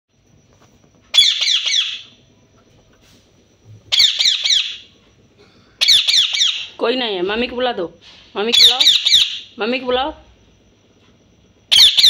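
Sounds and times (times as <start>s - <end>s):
parakeet screeching: 1.2s - 2.2s, 3.9s - 4.9s, 5.8s - 6.8s, 8.5s - 9.5s, 11.7s - 12.0s.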